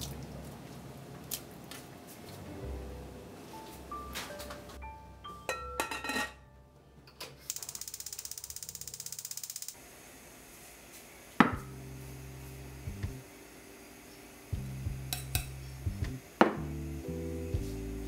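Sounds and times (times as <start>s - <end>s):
glass lid clinking on pot: 5.5s - 6.4s
steady low hum: 9.8s - 18.0s.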